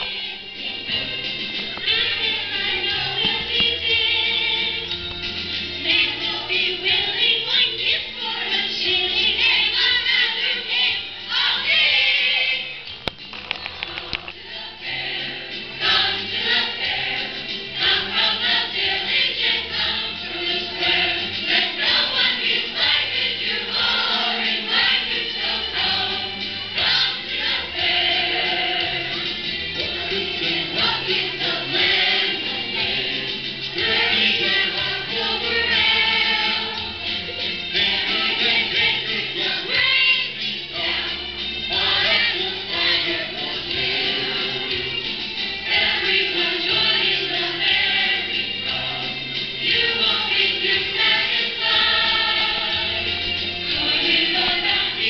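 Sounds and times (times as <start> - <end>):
children's chorus singing: 0.0 - 5.2, 5.8 - 12.9, 14.0 - 55.0
instrumental accompaniment: 8.2 - 55.0.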